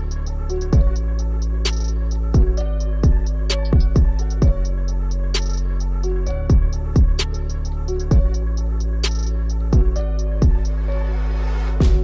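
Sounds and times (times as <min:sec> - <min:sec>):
hi-hat ticks: 0:00.0 - 0:10.8
deep kick drums: 0:00.7 - 0:01.2, 0:02.2 - 0:04.8, 0:06.5 - 0:07.2, 0:08.1 - 0:08.6, 0:09.7 - 0:10.8, 0:11.8 - 0:12.0.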